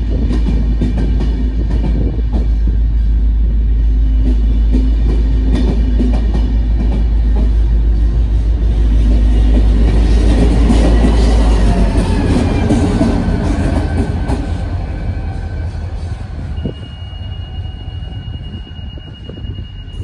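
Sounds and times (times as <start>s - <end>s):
train wheels rolling over rails: 0.0s - 16.7s
locomotive engine drone: 1.5s - 20.0s.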